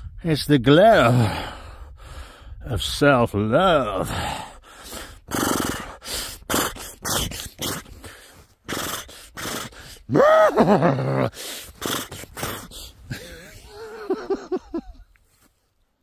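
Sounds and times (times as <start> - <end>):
man gasping breaths: 1.1 - 2.6, 4.0 - 10.1, 11.2 - 13.8
man groaning: 9.4 - 13.6.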